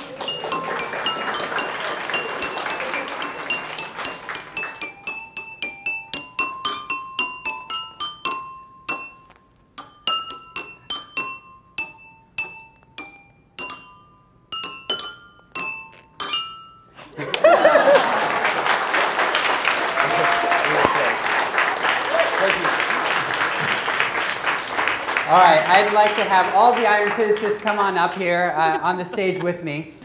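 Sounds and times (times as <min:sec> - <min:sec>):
drinking glasses struck in melody: 0:00.0 - 0:17.0.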